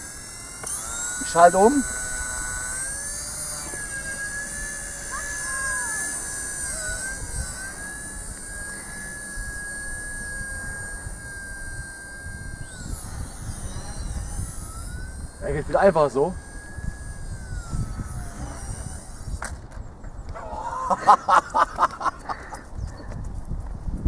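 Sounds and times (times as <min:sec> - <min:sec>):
rc helicopter motor whining: 0:00.0 - 0:24.0.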